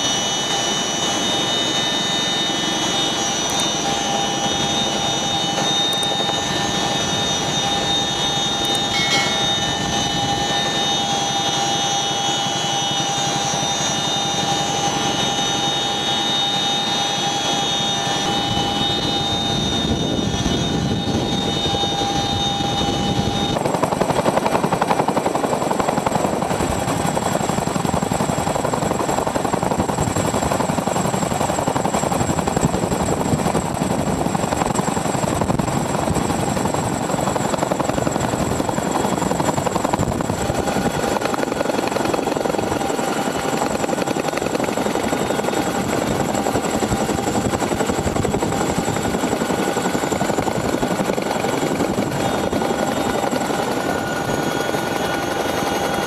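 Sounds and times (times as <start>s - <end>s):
steady whine: 0.0s - 24.0s
helicopter rotor and turbine noise: 0.0s - 56.0s.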